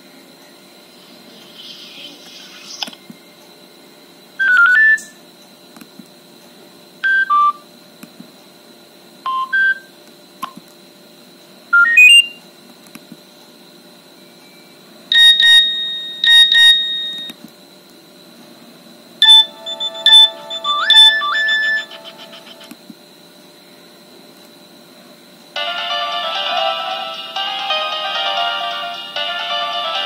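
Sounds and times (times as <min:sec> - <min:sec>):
short electronic alert chimes: 0:19.2 - 0:22.6.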